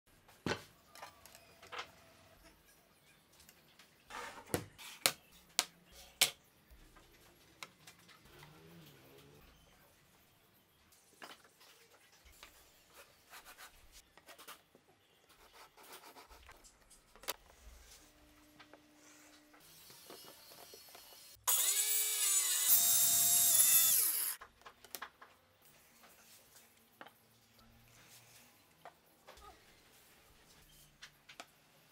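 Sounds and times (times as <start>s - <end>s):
circular saw cutting plywood: 19.6s - 24.4s.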